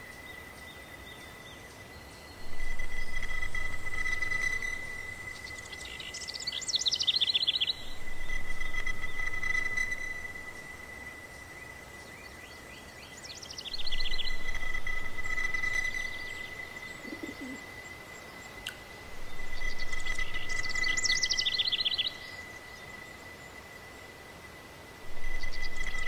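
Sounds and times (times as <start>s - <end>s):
songbirds trilling: 0.0s - 23.7s, 25.1s - 26.0s
low bird coo: 13.8s - 17.7s.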